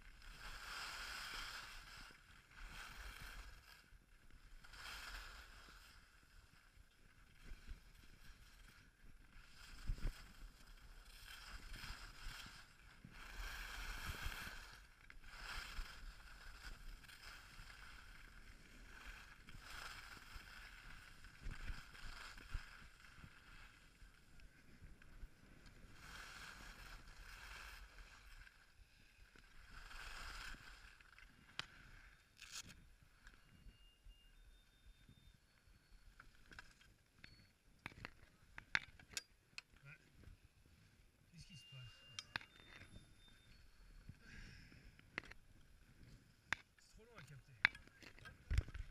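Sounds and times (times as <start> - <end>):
skis scraping over snow: 0.1 - 33.5.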